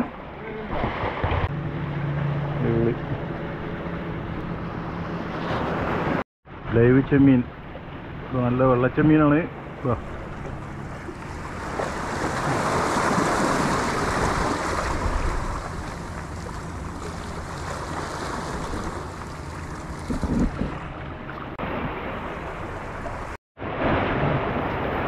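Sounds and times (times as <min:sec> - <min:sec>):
sea waves breaking on concrete: 0:11.0 - 0:20.8.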